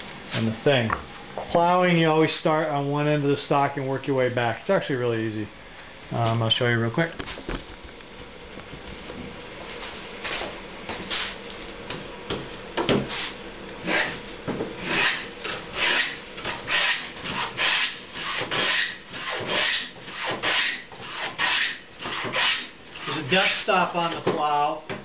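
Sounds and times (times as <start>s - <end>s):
plane cutting wood: 13.8s - 14.2s, 14.8s - 23.7s.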